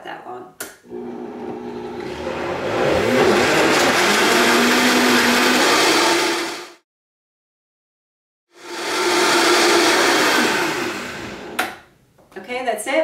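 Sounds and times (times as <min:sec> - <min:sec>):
blender motor running: 0:00.9 - 0:06.8, 0:08.6 - 0:11.7.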